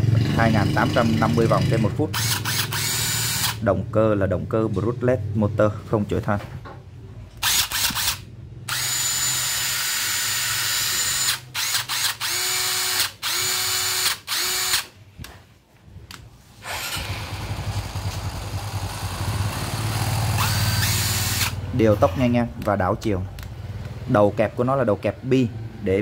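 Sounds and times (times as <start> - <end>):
impact wrench spinning: 2.2 - 3.6, 7.4 - 14.9, 16.6 - 21.6.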